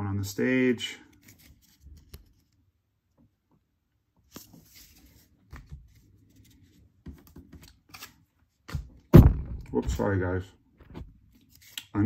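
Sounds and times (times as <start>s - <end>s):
trading cards rustling and clicking: 4.3s - 8.8s, 11.3s - 12.0s.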